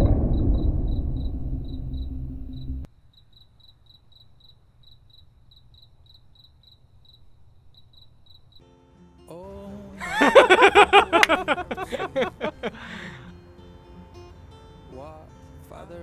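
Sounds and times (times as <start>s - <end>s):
crickets chirping: 0.0s - 8.8s, 10.0s - 13.3s.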